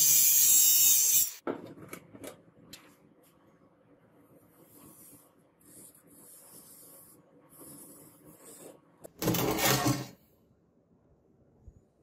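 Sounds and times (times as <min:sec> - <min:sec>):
marker pen scratching on metal: 0:04.6 - 0:10.0.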